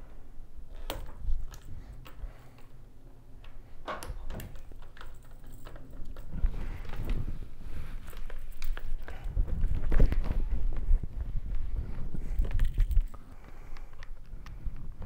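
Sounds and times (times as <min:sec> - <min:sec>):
helmet clicks and knocks: 0:03.5 - 0:07.3
low thumps and rustling: 0:04.3 - 0:15.0.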